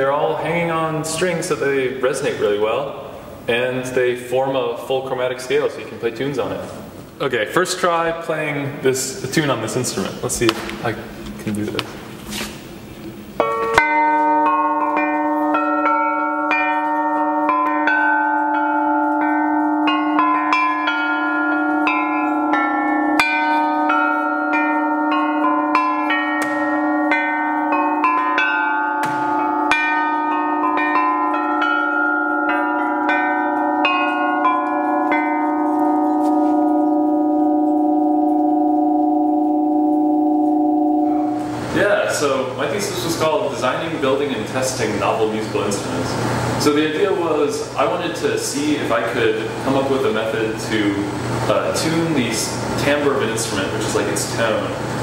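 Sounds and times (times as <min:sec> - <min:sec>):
metal bells struck with mallets: 0:13.2 - 0:44.2.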